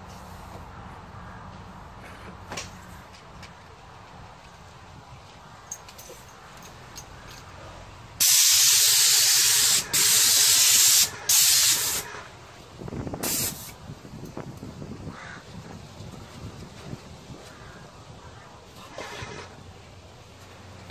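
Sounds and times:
paint sprayer hissing: 8.2s - 12.3s, 13.2s - 13.8s.

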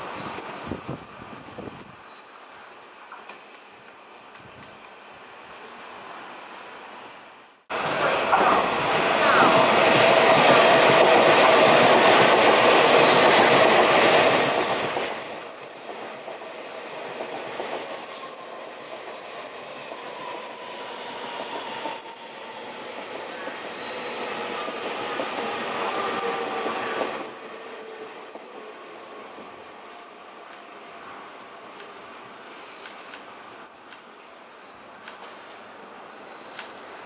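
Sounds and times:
faint wheel squeal: 0.0s - 3.6s, 13.0s - 37.0s
train passing: 0.0s - 37.0s.

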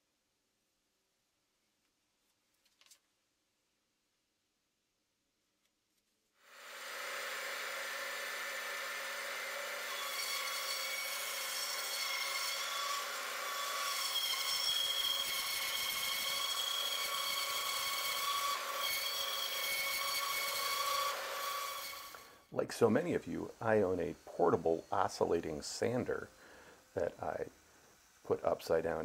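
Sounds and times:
bandsaw cutting wood: 6.5s - 29.0s.

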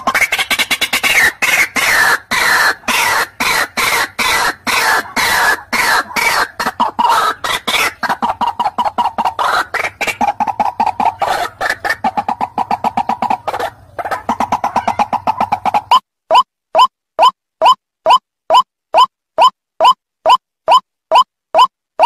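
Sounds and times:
bird croaking call: 0.0s - 20.0s.

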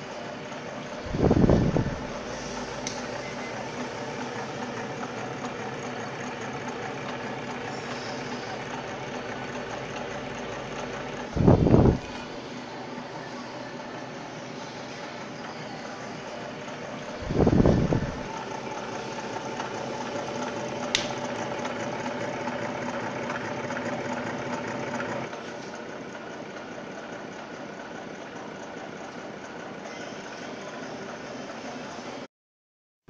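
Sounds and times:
generator mechanical hum: 0.0s - 32.3s
standing fan running: 0.0s - 32.3s.

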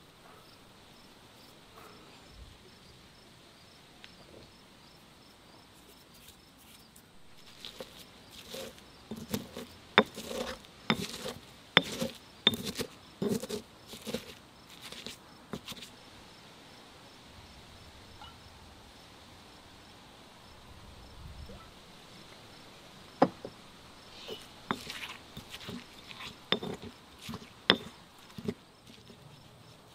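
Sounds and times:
crickets chirping: 0.1s - 29.9s
stone pestle pounding in mortar: 8.4s - 14.3s, 24.7s - 28.6s.

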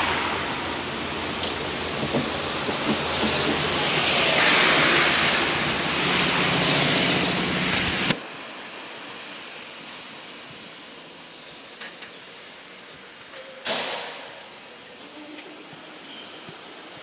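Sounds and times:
traffic rushing past: 0.0s - 9.4s
faint outdoor ambience: 0.0s - 17.0s.

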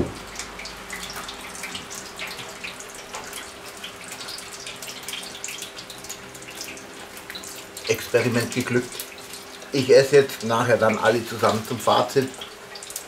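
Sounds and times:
electric fan humming: 0.0s - 13.0s.

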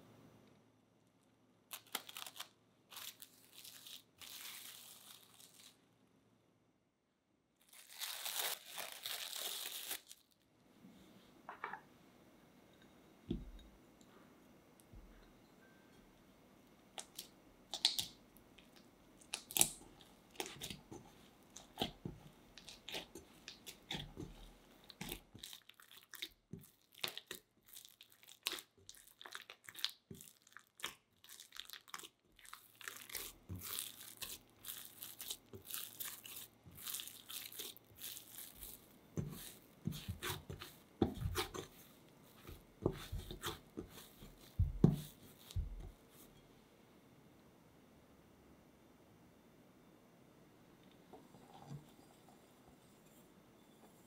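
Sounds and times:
dough squelching as kneaded: 17.0s - 46.4s
dull thumps of dough: 42.4s - 46.0s.

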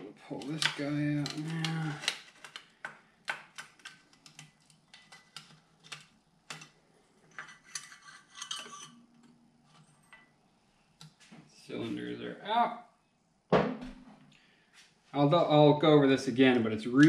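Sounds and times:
metal parts clicking and knocking: 0.4s - 8.9s.

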